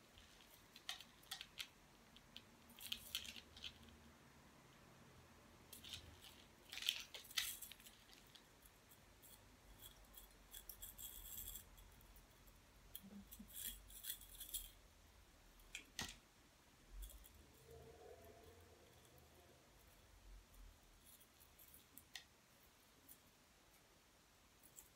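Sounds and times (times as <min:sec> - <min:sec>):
small objects clicking and snipping: 0:00.2 - 0:04.1, 0:05.7 - 0:14.8, 0:21.0 - 0:22.4.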